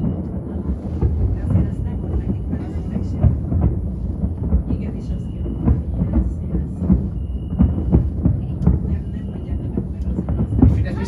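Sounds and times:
distant fireworks bursts: 0.0 - 11.0
sharp fireworks bangs: 0.0 - 11.0.

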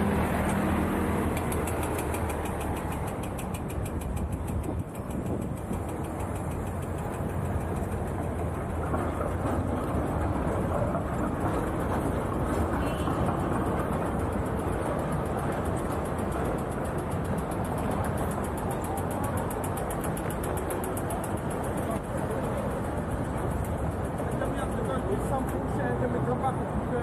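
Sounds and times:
city traffic hum: 0.0 - 27.0
fast even ticking: 1.2 - 8.8, 14.1 - 25.4.

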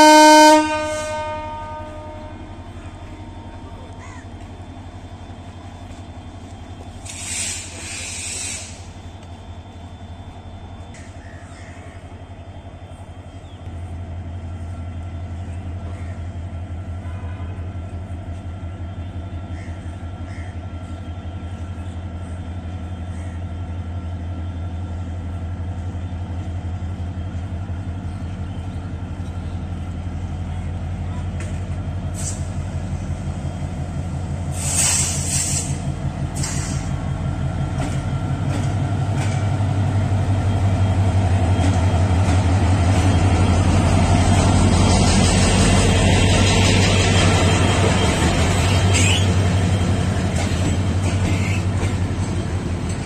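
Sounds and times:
locomotive horn: 0.0 - 2.9, 16.9 - 17.9
locomotive engine hum: 0.0 - 53.0
brief hiss: 7.0 - 8.9, 32.1 - 32.6, 34.5 - 35.8.

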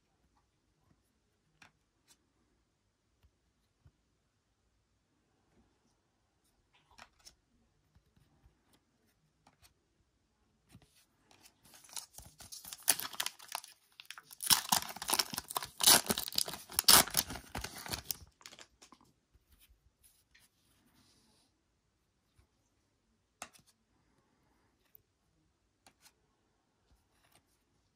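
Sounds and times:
foil wrapper ripping: 11.8 - 18.8.

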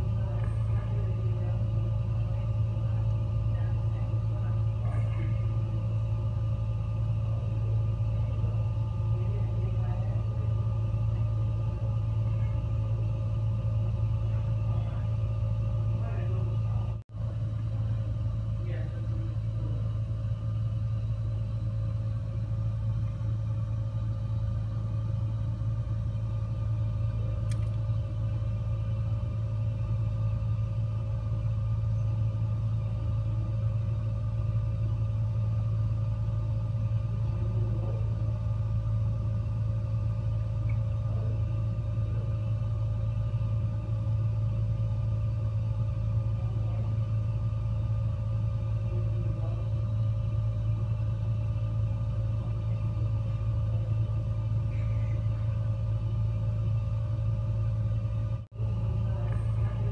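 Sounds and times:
faint steady hum: 0.0 - 59.9
gas fireplace rumbling: 0.0 - 59.9.

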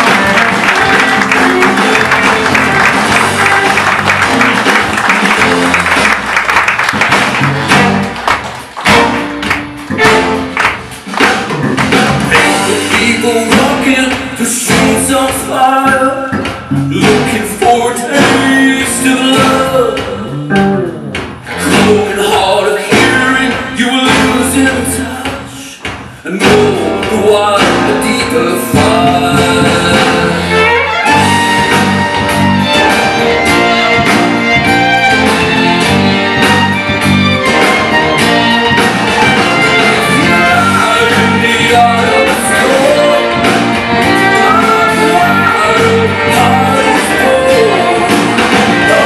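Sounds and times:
violins and cello: 0.0 - 4.5, 30.2 - 49.0
live folk-rock band: 0.0 - 49.0
steady drum beat: 0.0 - 49.0.

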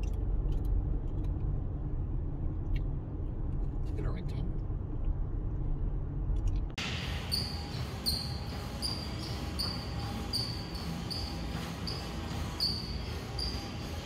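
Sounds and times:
treadmill hum: 6.8 - 14.0
high-pitched chirp: 7.1 - 14.0.

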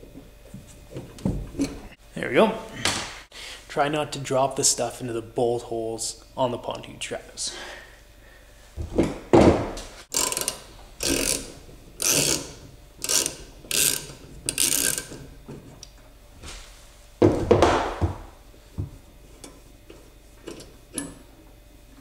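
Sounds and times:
hand ratchet clicking: 10.1 - 15.2.

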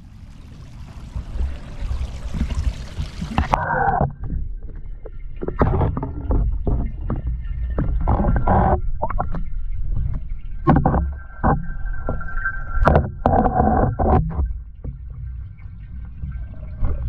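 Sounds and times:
water rushing: 0.0 - 4.3
bubbles gurgling: 0.0 - 9.3
muffled underwater rumble: 0.0 - 17.0
underwater knocks: 1.1 - 15.2.

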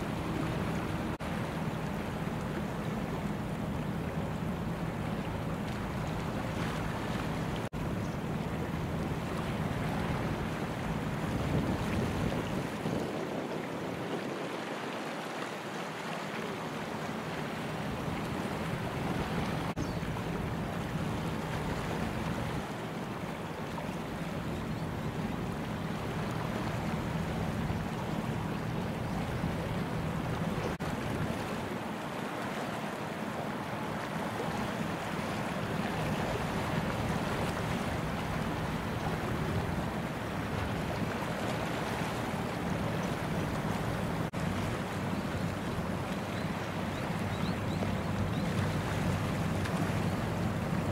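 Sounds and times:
ship bow wave rushing: 0.0 - 7.7
low engine drone: 0.0 - 11.4
wind rumble on microphone: 0.0 - 15.0, 17.3 - 23.2, 23.8 - 31.9, 34.0 - 50.9.

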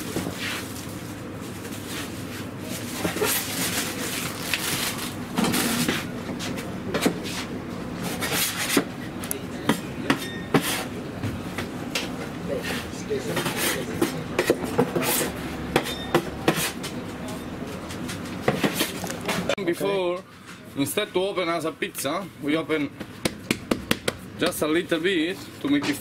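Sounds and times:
steady background noise: 0.0 - 26.0
kitchen knocks and clinks: 9.7 - 10.8, 15.7 - 16.7.

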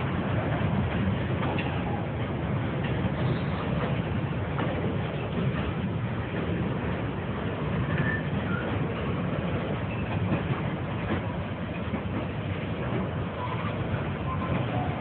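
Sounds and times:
freight train wheels on rails: 0.0 - 15.0.

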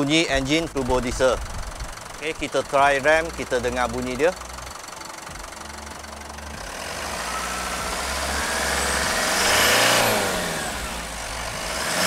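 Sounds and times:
diesel engine revving: 0.0 - 12.0
turbo whistle: 7.0 - 10.1.

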